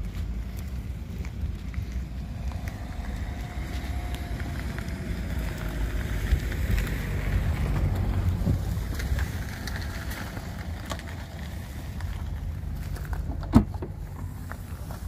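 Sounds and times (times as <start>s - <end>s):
wind buffeting microphone: 0.0s - 12.6s
footsteps on gravel: 0.0s - 15.0s.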